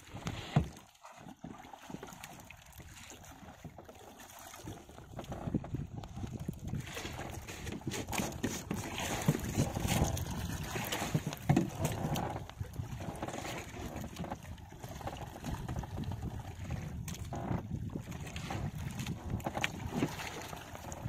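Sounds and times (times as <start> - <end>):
sea water washing against hull: 0.0 - 21.0
wind buffeting microphone: 5.1 - 21.0.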